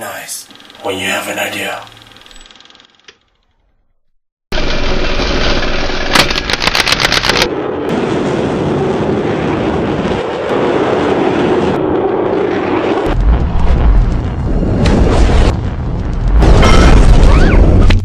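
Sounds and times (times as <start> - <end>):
rapid rattle of sharp clacks: 0.4 - 3.3
jet thruster roar: 7.4 - 18.0.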